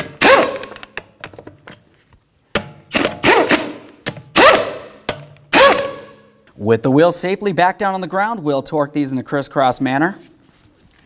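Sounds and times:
impact gun bursts: 0:00.0 - 0:00.8, 0:02.9 - 0:06.2.

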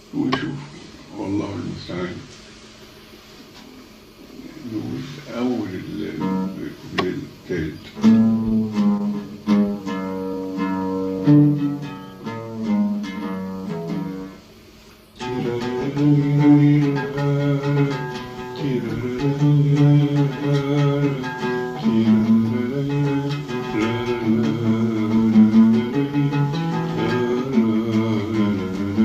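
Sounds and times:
oud melody plucked: 0:08.0 - 0:14.5, 0:15.2 - 0:29.0.

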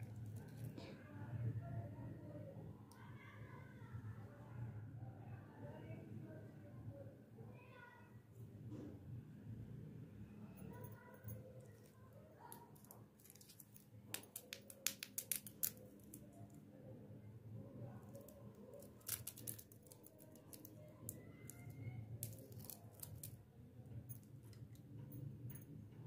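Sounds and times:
plastic wrappers crinkling: 0:12.4 - 0:16.4, 0:18.1 - 0:23.4.

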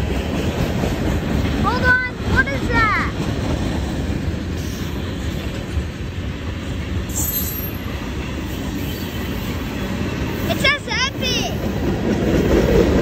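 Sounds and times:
train wheels rumbling on rail: 0:00.0 - 0:13.0
high-pitched wheel squeal: 0:07.1 - 0:07.9.

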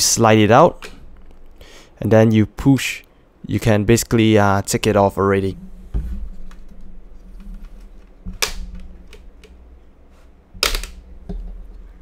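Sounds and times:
plastic bezel snapping: 0:10.6 - 0:11.0.

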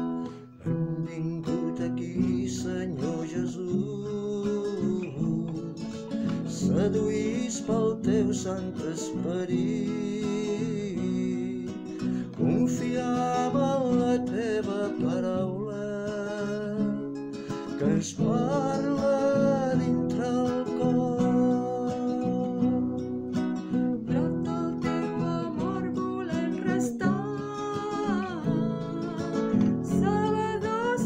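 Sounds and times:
acoustic guitar: 0:00.0 - 0:31.0
person singing liturgical song: 0:24.1 - 0:31.0.

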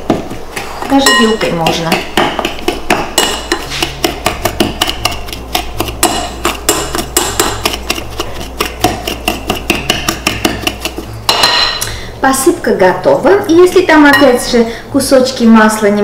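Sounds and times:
metal blender clinking glass bowl: 0:00.9 - 0:01.7.

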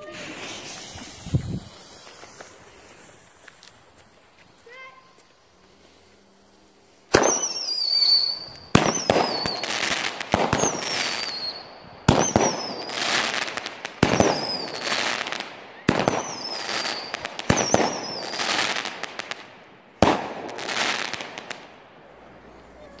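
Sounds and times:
firework whistle: 0:00.0 - 0:06.2, 0:07.1 - 0:15.2, 0:15.8 - 0:18.8
firework crackling: 0:00.0 - 0:23.0
firework pop: 0:00.3 - 0:03.8.

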